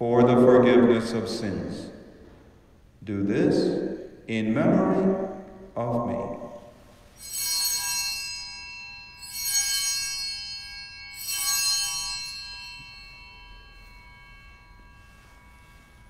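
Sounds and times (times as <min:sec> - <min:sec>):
altar bells ringing: 0:06.4 - 0:16.0.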